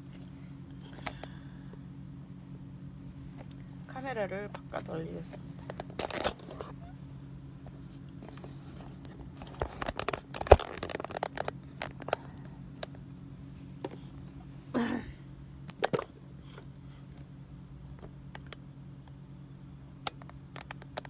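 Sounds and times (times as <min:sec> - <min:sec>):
low hum: 0:00.0 - 0:21.0
phone handling rustles: 0:07.7 - 0:12.9.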